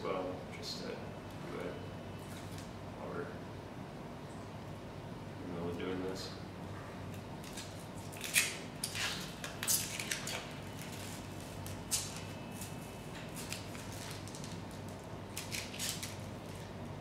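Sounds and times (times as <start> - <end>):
plastic film peeling: 7.1 - 17.0.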